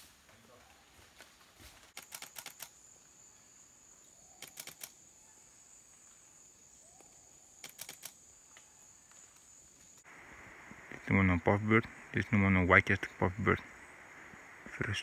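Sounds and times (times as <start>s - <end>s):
camera shutter clicking: 4.4s - 5.0s, 7.6s - 8.2s.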